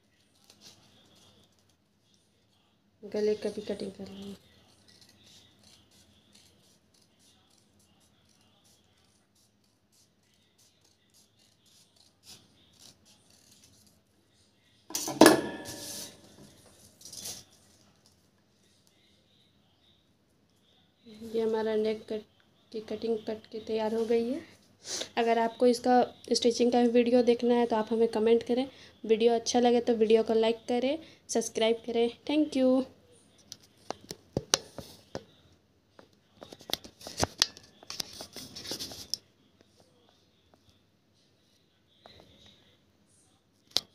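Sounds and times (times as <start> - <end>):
shears snipping paper: 4.0 - 14.0
metallic clatter of shears set down: 14.9 - 16.3
paper rustling: 15.6 - 18.2, 36.4 - 39.2.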